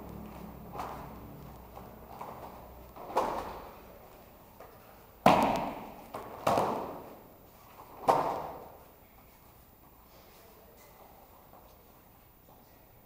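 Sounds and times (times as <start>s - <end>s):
bodies thudding on foam mats: 0.6s - 3.9s, 5.2s - 7.2s, 7.8s - 8.8s.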